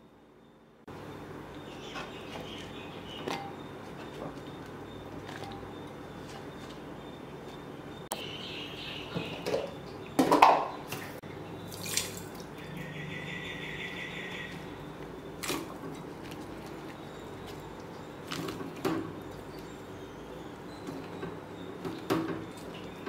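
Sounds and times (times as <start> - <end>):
dripping water: 9.4 - 12.9.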